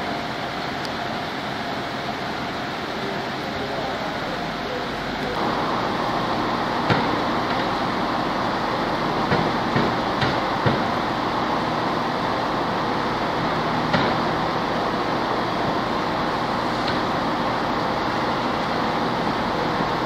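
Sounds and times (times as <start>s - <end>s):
diesel train engines rumbling: 0.0s - 20.0s
rain hissing: 0.0s - 20.0s
sharp knocks: 9.3s - 10.9s, 13.9s - 14.2s.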